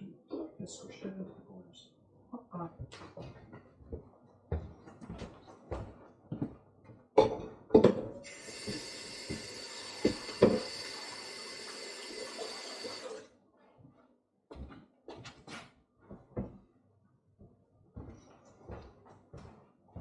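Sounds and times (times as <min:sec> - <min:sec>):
tap running water into sink: 0:08.2 - 0:13.2.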